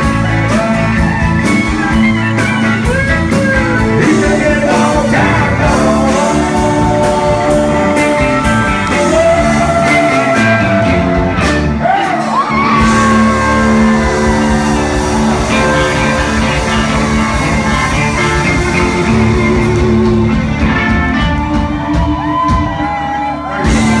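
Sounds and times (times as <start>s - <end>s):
country band playing: 0.0s - 24.0s
man singing lead vocal: 2.8s - 21.1s
crowd shouting: 11.8s - 20.4s.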